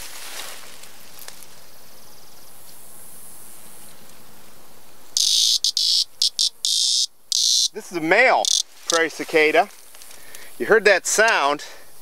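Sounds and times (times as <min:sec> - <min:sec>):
steady background hiss: 0:00.0 - 0:12.0
cicada harsh buzz: 0:05.1 - 0:09.5.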